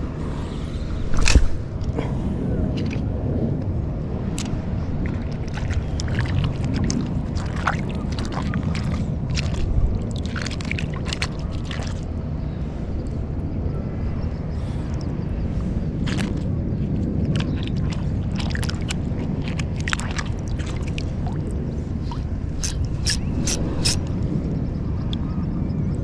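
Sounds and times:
wind rumble on microphone: 0.0s - 26.0s
water lapping: 4.2s - 13.4s, 14.5s - 24.3s.

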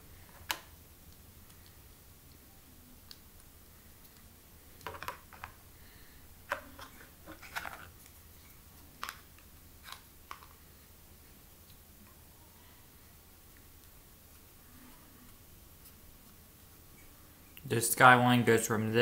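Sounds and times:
low room hum: 0.0s - 19.0s
packaging rustling: 6.4s - 8.1s.

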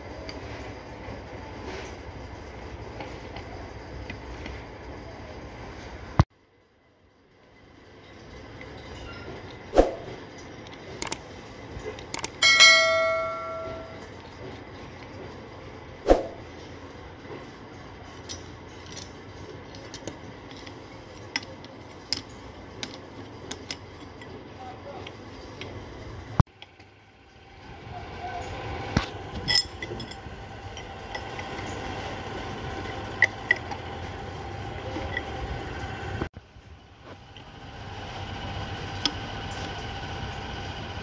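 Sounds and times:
steady mechanical hum: 0.0s - 41.0s
metal tools clinking and tapping: 12.2s - 14.1s, 29.4s - 31.8s
sharp metal knock: 12.4s - 14.0s.

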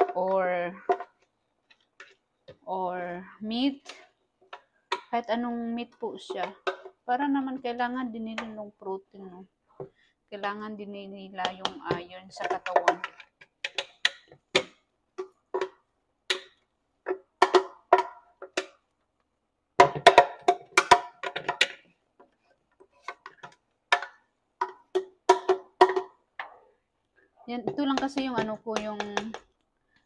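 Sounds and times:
spatula knocking plastic blender jar: 11.4s - 18.8s, 23.1s - 26.2s, 27.6s - 29.6s.

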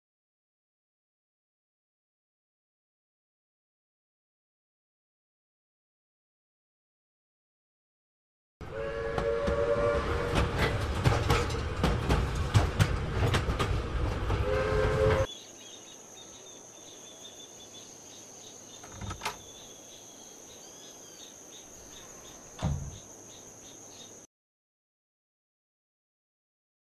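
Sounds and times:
steam train whistle: 8.6s - 10.8s, 14.4s - 15.3s
steam locomotive hissing and clanking: 8.8s - 15.3s.

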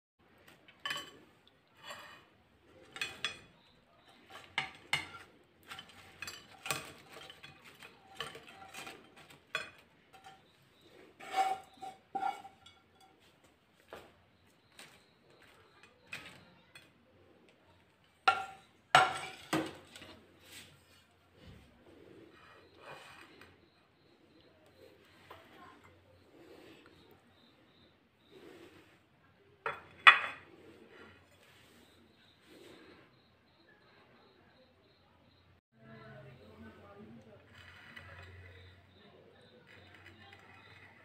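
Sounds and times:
frying pan clinking on ceramic plate: 11.2s - 13.1s, 18.3s - 19.8s.

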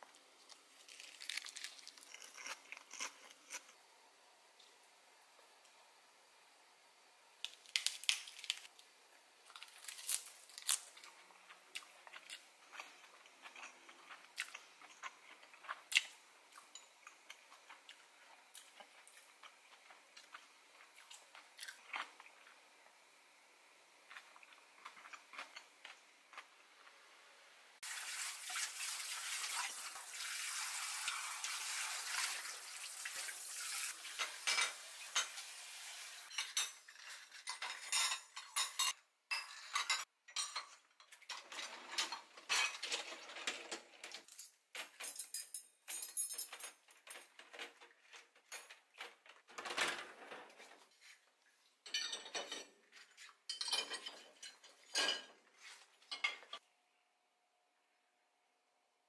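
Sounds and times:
dishes clinking: 34.2s - 35.4s, 36.3s - 43.1s, 51.8s - 52.8s, 53.5s - 55.4s, 56.1s - 56.6s.

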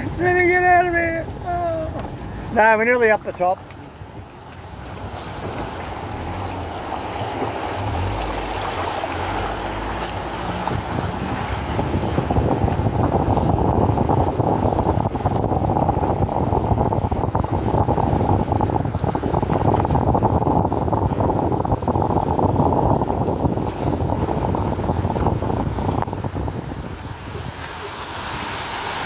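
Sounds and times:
engine and tyres on rough ground: 0.0s - 29.0s
wind buffeting microphone: 0.0s - 29.0s.

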